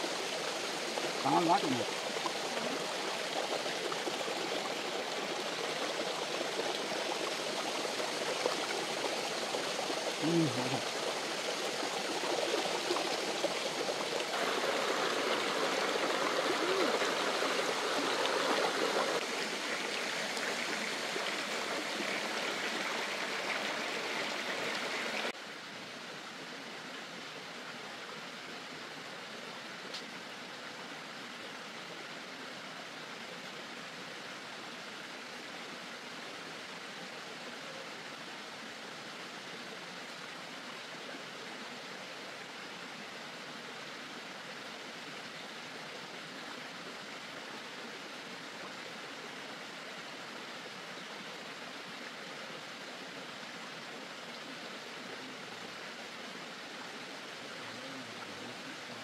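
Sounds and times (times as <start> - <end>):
running water rushing: 0.0 - 59.0
faint click: 29.9 - 30.2.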